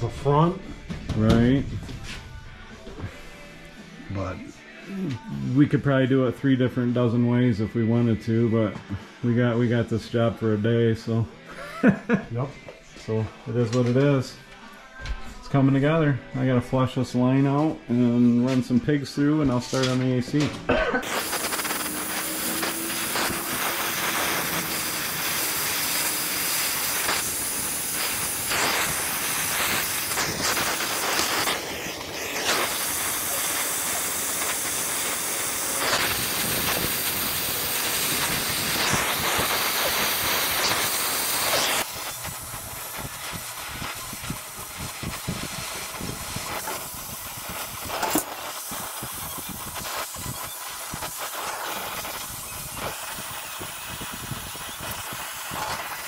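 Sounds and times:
torch flame hissing: 21.0s - 56.0s.

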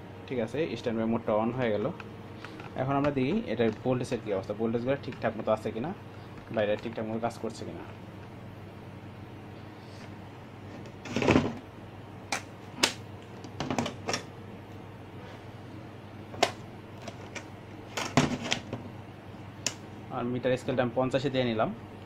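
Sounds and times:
steady low hum: 0.0s - 22.0s
handling clicks and knocks: 2.4s - 3.9s.

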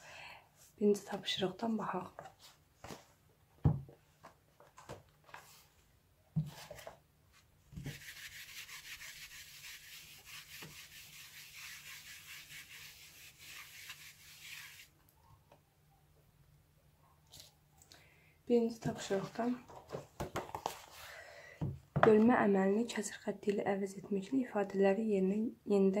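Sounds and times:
eraser rubbing whiteboard: 7.8s - 14.9s.

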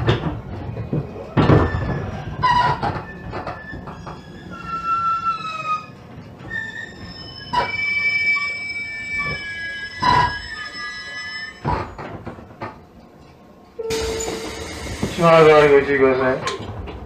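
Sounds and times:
train thumps and clatters: 0.0s - 4.2s, 11.6s - 12.8s, 13.9s - 15.7s
train rumbling: 0.0s - 10.8s, 11.8s - 17.0s
inverter whine: 13.8s - 15.9s.

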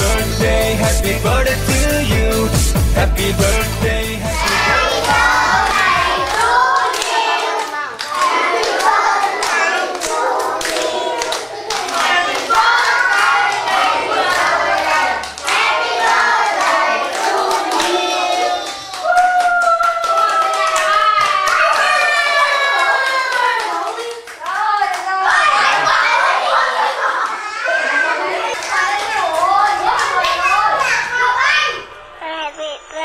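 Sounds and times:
children singing: 3.4s - 19.0s
children clapping: 4.4s - 31.5s.

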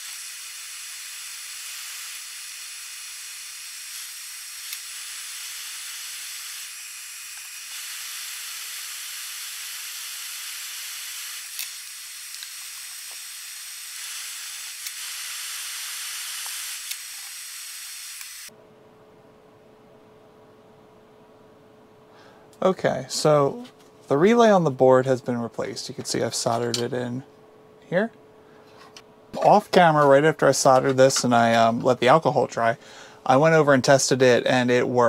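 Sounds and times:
fume extractor fan hissing: 0.0s - 18.5s
soldering clicks: 11.5s - 13.2s.

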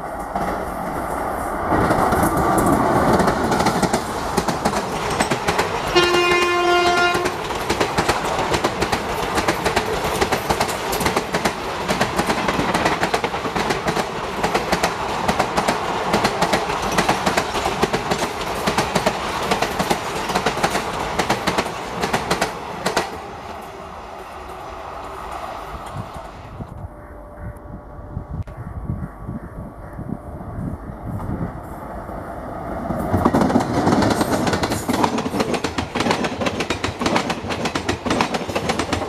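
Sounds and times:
train wheels clattering over rail joints: 1.7s - 23.8s, 32.8s - 39.0s
locomotive horn blast: 5.9s - 7.4s.

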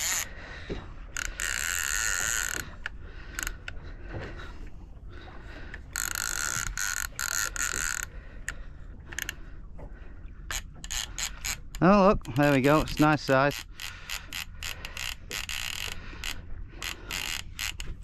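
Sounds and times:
fishing reel drag buzzing: 0.0s - 0.4s, 1.1s - 3.6s, 5.9s - 8.1s, 10.5s - 11.8s, 12.8s - 18.0s.

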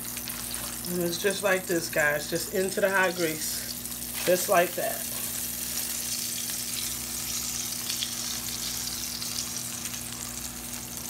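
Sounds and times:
fish frying in hot grease: 0.0s - 11.0s.

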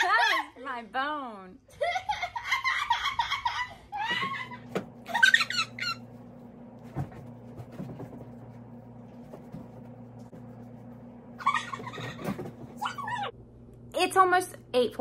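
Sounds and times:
woman squealing and giggling: 2.2s - 6.0s.

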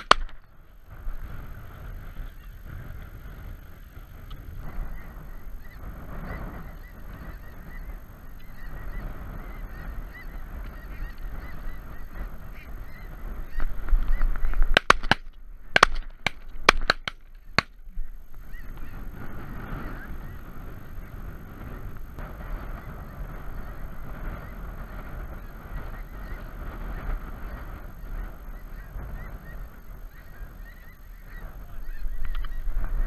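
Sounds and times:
shotgun shots: 0.0s - 0.4s, 14.6s - 17.8s
geese honking: 4.8s - 21.3s, 22.6s - 32.7s.

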